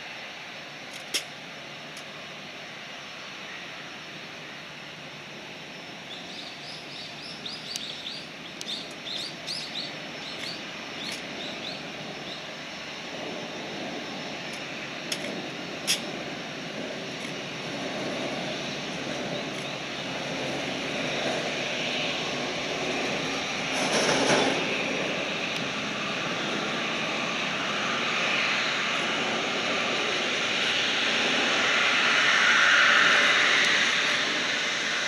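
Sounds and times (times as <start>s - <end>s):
jet engines humming: 0.0s - 35.0s
bird chirping: 6.1s - 12.5s.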